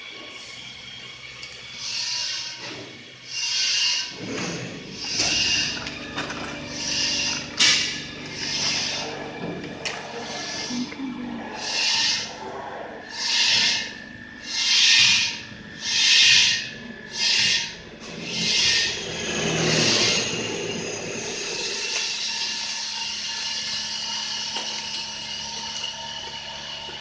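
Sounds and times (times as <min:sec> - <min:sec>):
laminating press humming: 0:03.9 - 0:22.8
rasping hissing strokes: 0:06.7 - 0:09.4, 0:10.1 - 0:21.9.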